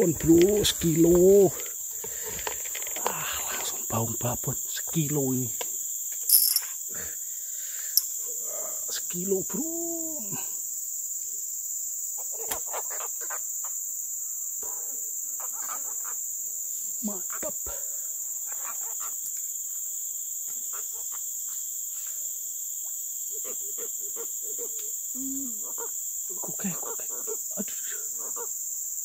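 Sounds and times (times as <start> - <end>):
insects chorus shrill drone: 0.0 - 29.0.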